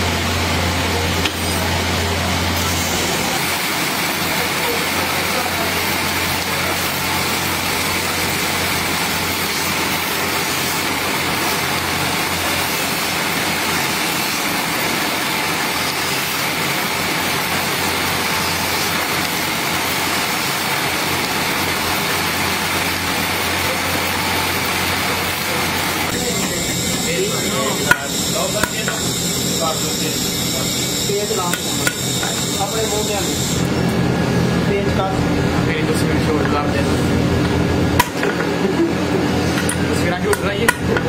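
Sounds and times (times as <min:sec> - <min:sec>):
belt grinder humming: 0:25.6 - 0:33.8
steel blades grinding on belt: 0:26.1 - 0:33.7.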